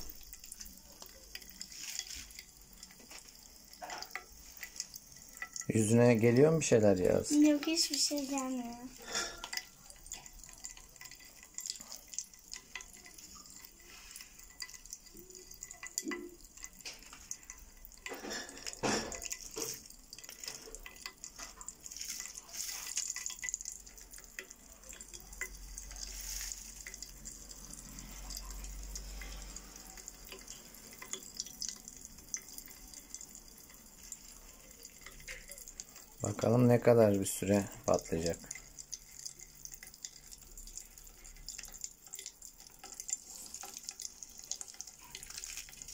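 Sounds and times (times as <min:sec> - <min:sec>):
popping candy crackling in soda: 0:00.0 - 0:45.9
candy poured from sachet: 0:25.8 - 0:26.8.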